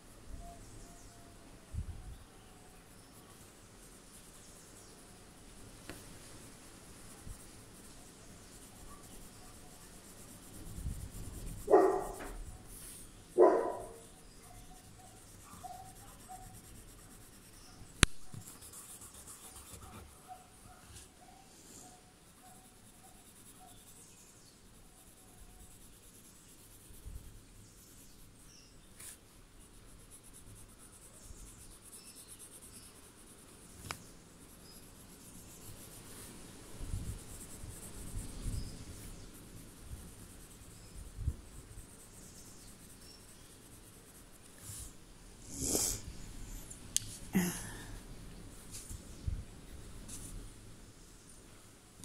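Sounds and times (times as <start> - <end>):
pencil scratching on paper: 5.8 - 21.2, 21.8 - 46.7.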